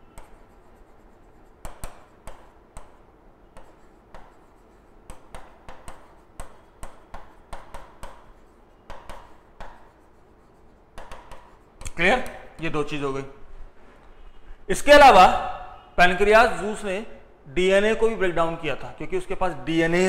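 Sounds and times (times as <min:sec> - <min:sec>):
marker squeaking on whiteboard: 0:00.0 - 0:13.0.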